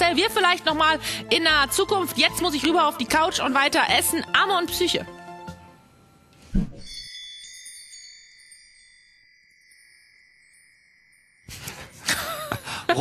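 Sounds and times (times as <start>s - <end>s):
high ringing chime tones: 6.8s - 11.5s.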